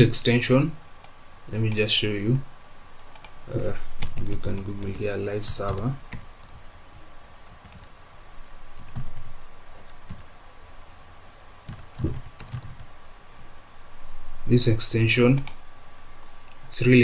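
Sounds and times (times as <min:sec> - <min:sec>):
computer keyboard keystrokes: 0:04.0 - 0:06.6, 0:07.5 - 0:07.9, 0:08.8 - 0:09.2, 0:09.8 - 0:10.3, 0:11.7 - 0:12.9.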